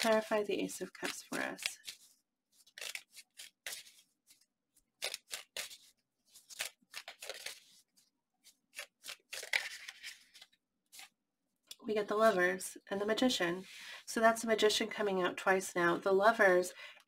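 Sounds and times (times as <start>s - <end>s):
cards shuffling: 0.0s - 11.2s.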